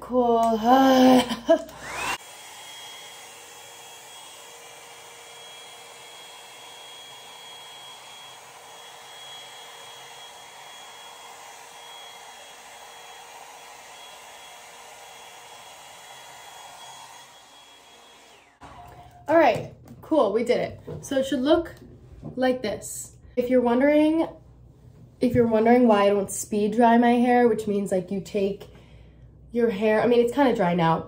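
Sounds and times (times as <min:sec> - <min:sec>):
hair dryer whirring: 0:00.4 - 0:20.4.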